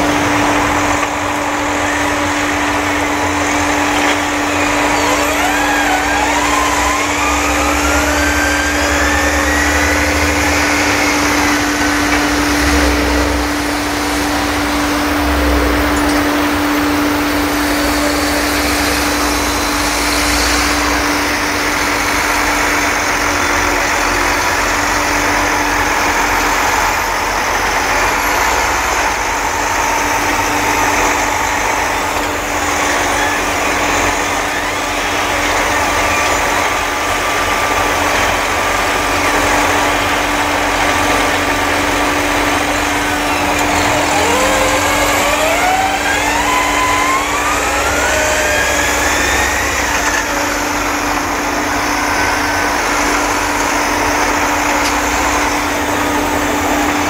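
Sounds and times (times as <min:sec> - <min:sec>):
steady tone: 0:00.0 - 0:22.2
diesel engines running: 0:00.0 - 0:57.0.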